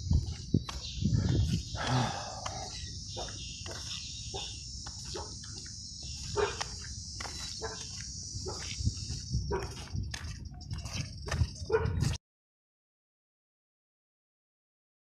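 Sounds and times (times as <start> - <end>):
insects chirring: 0.0 - 11.9.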